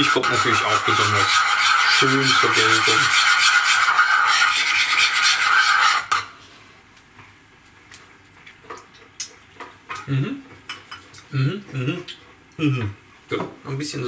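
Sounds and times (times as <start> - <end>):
spoon scraping in bowl: 0.0 - 6.2.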